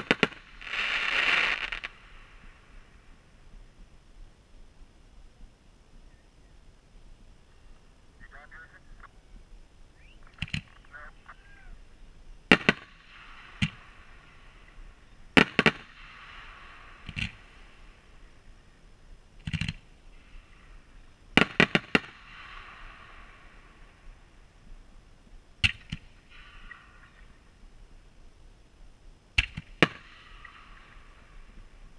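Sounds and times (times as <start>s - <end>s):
fireworks exploding: 0.0s - 3.7s, 10.0s - 18.7s, 19.4s - 24.6s, 29.3s - 31.9s.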